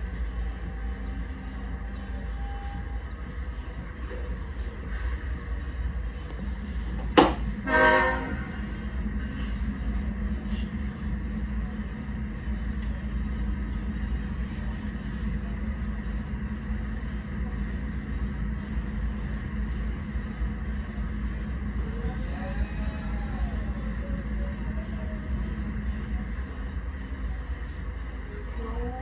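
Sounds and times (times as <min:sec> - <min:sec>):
steady low rumble: 0:00.0 - 0:29.0
diesel locomotive horn toot: 0:07.4 - 0:08.9.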